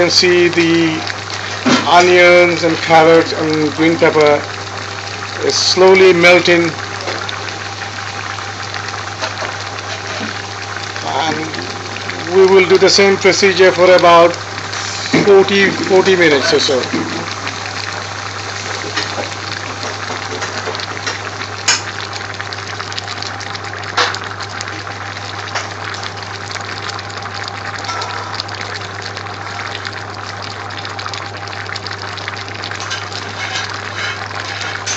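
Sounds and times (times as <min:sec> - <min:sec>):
pot boiling with bubbling hiss: 0:00.0 - 0:34.9
sharp pops: 0:18.7 - 0:22.1.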